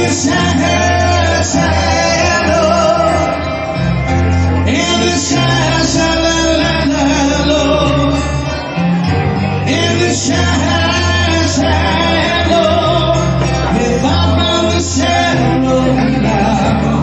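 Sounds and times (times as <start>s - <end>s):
woman and man singing duet: 0.0s - 3.5s, 9.7s - 17.0s
backing track music: 0.0s - 17.0s.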